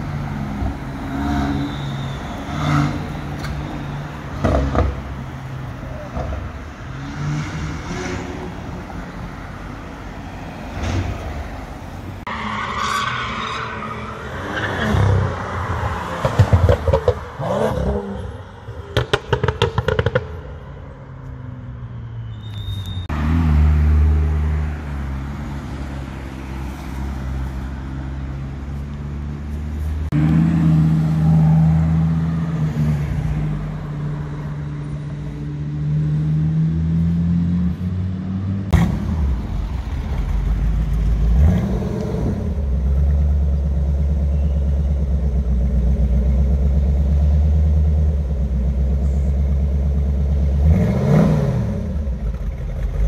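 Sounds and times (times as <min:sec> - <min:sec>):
sports car engines revving: 0:00.0 - 0:11.1, 0:23.1 - 0:53.0.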